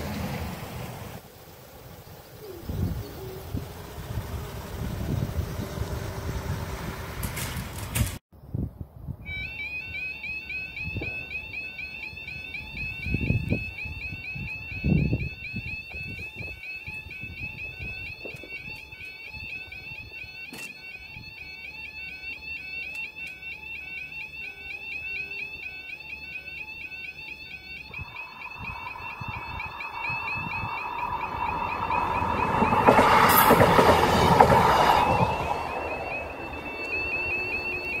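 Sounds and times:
train passing: 0.0 - 8.0, 27.8 - 38.0
level crossing alarm warbling: 2.3 - 7.2, 9.3 - 38.0.

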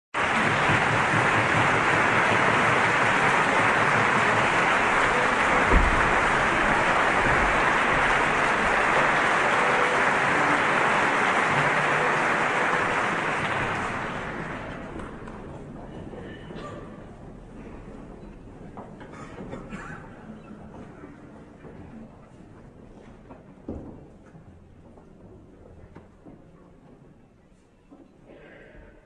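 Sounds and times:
audience applause: 0.2 - 16.4
low thump: 5.6 - 8.0.

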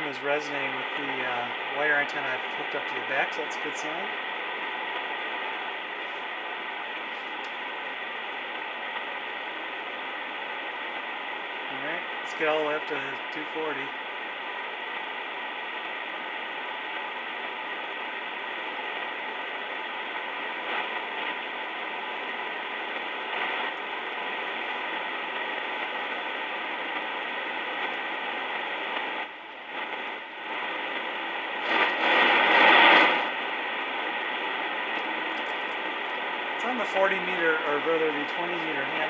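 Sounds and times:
radio static hiss: 0.0 - 39.0.

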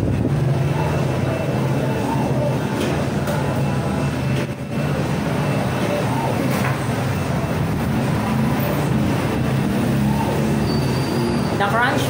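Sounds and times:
loud mechanical hum: 0.0 - 12.0
faint indistinct voices: 0.6 - 4.8.

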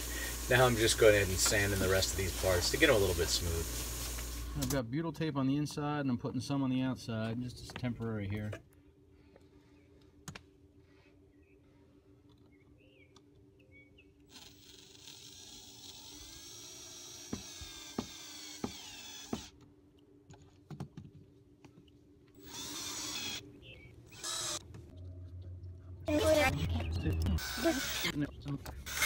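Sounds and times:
drill motor whine: 14.3 - 19.5, 22.4 - 23.4, 24.1 - 24.6, 27.4 - 28.2.

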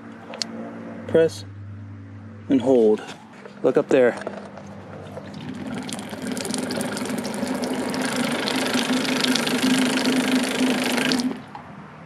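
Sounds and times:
pump humming: 5.1 - 11.6
water hissing: 5.4 - 11.4.

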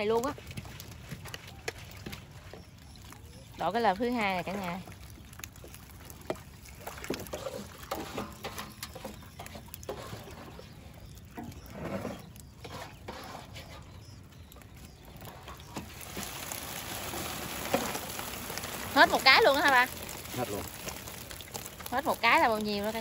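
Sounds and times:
fish flapping and slapping: 0.0 - 23.0
water splashing and dripping: 0.0 - 23.0.

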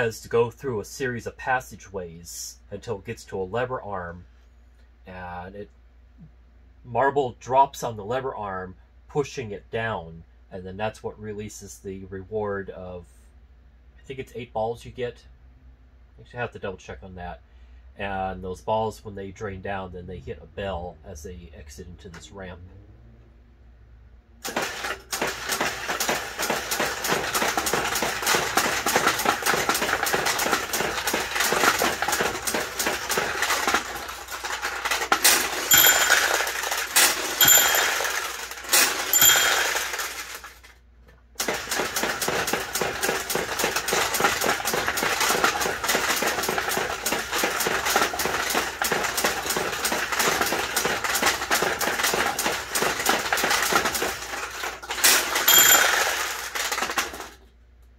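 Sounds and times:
steel balls clattering through pins: 24.4 - 40.7, 41.4 - 57.4
small bell ringing: 35.7 - 36.5, 37.4 - 38.2, 39.1 - 39.8, 55.5 - 56.2.

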